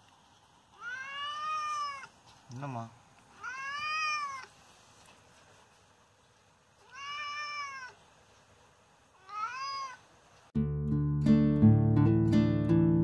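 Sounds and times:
cat meowing: 0:00.8 - 0:02.2, 0:03.3 - 0:04.6, 0:06.8 - 0:08.0, 0:09.2 - 0:10.1
acoustic guitar music: 0:10.6 - 0:13.0.

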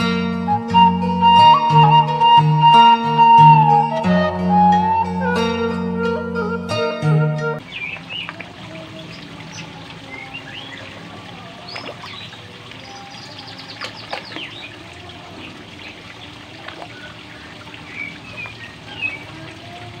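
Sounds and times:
birds chirping: 0:07.5 - 0:20.0
pond water splashing: 0:07.6 - 0:20.0.

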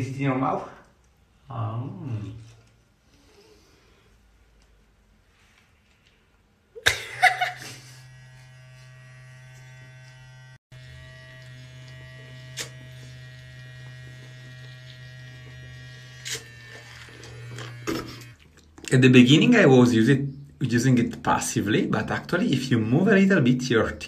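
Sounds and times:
electric toothbrush buzzing: 0:06.9 - 0:18.4.

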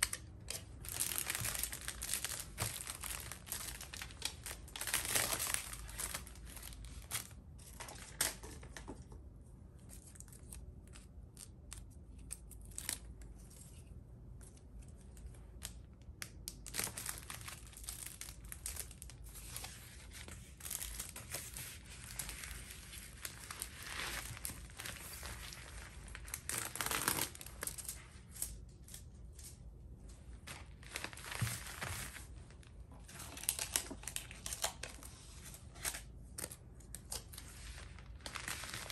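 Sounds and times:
paper and plastic rustling: 0:00.0 - 0:09.2, 0:30.2 - 0:38.9.

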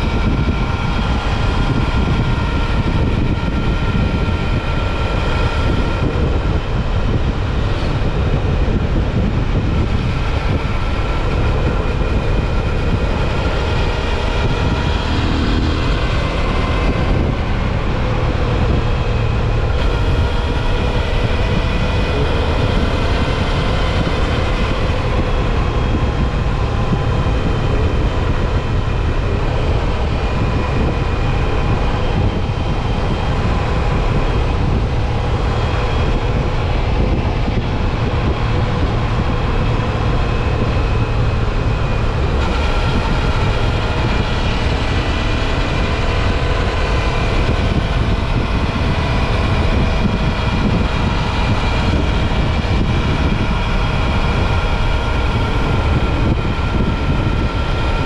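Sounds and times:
motorcycle engine cruising: 0:00.0 - 0:58.0
road noise: 0:00.0 - 0:58.0
wind noise: 0:00.0 - 0:58.0.

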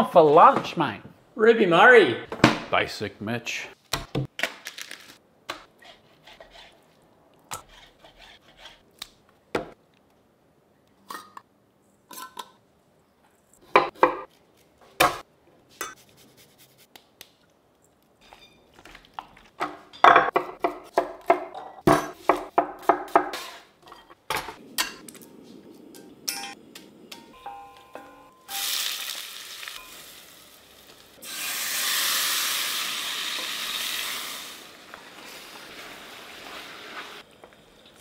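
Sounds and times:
knife cutting on a cutting board: 0:07.5 - 0:08.8.

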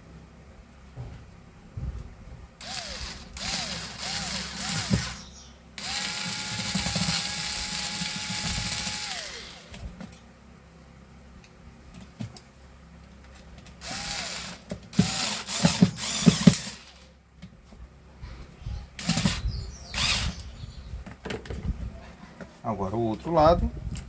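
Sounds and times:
electric screwdriver motor: 0:02.6 - 0:05.2, 0:05.8 - 0:09.8, 0:13.8 - 0:17.0, 0:19.0 - 0:19.4, 0:20.0 - 0:20.4.

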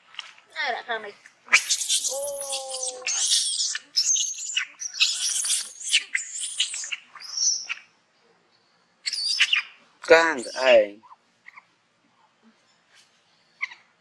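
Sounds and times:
monkeys screeching: 0:01.5 - 0:07.8, 0:09.1 - 0:09.7.

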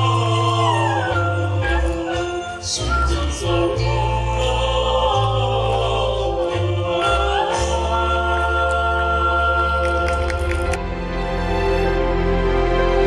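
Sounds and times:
deep bass: 0:00.0 - 0:13.0
group singing in harmony: 0:00.0 - 0:13.0.

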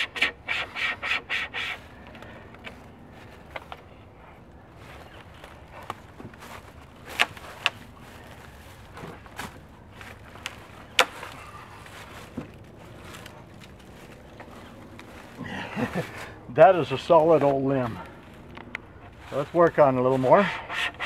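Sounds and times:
dry wood snapping: 0:07.0 - 0:07.9, 0:09.4 - 0:15.2.

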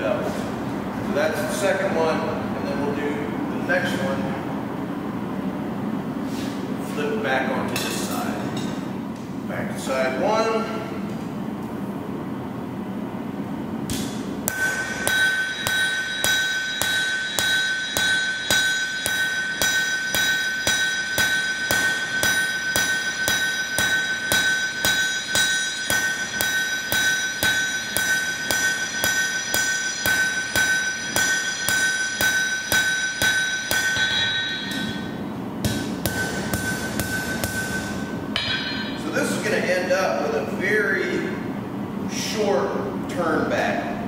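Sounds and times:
hammer striking steel on anvil: 0:13.9 - 0:39.7
anvil ringing: 0:14.5 - 0:39.7.

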